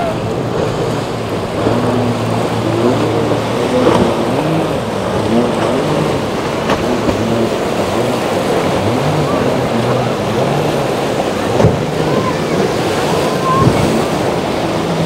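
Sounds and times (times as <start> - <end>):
motorboat engines: 0.0 - 15.0
waves: 0.0 - 15.0
wind: 0.0 - 15.0.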